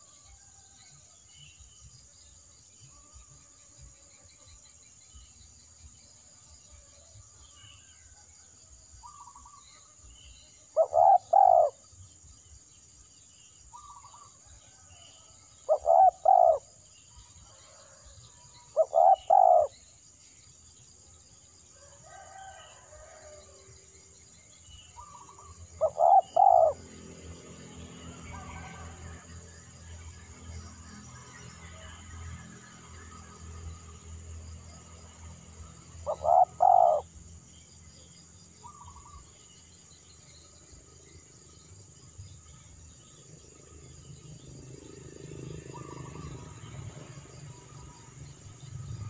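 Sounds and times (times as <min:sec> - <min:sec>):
dove cooing: 0:10.8 - 0:11.8, 0:15.7 - 0:16.8, 0:18.8 - 0:19.7, 0:25.0 - 0:26.8, 0:36.0 - 0:37.1
small birds chirping: 0:13.6 - 0:14.8, 0:24.6 - 0:27.0, 0:38.6 - 0:40.9.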